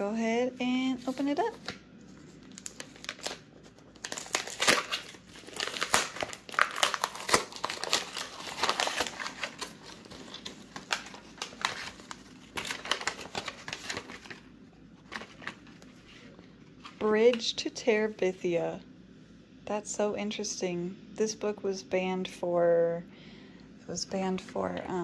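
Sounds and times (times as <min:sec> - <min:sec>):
paper tearing and crinkling: 0:01.1 - 0:14.4.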